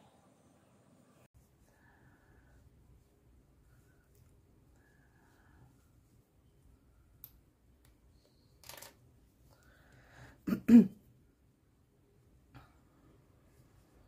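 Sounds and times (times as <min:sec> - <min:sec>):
soft rustle: 0:01.4 - 0:07.2
person coughing: 0:10.4 - 0:11.0.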